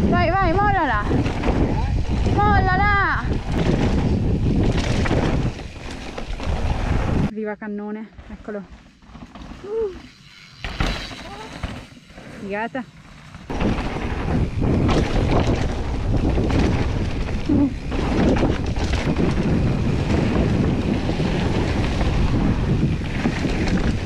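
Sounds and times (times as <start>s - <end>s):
bike knocking and rattling: 0.0s - 7.3s, 8.7s - 24.0s
wind rushing over microphone: 0.0s - 7.3s, 13.5s - 24.0s.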